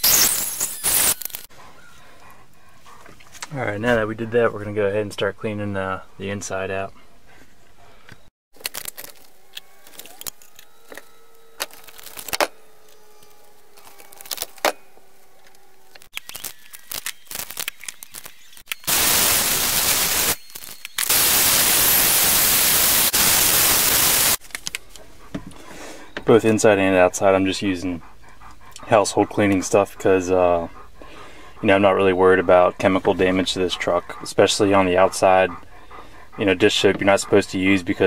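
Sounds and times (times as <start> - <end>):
vacuum cleaner running: 18.9 - 20.4, 21.1 - 24.4.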